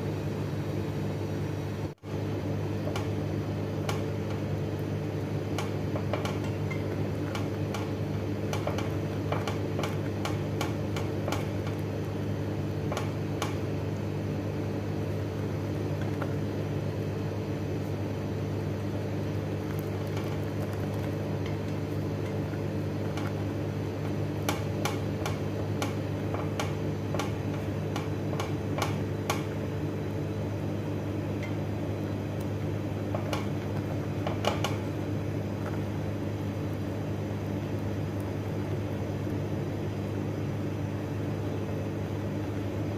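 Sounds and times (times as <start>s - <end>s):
steady low hum: 0.0s - 42.9s
whisk tapping against saucepan: 5.6s - 11.9s, 20.1s - 29.5s.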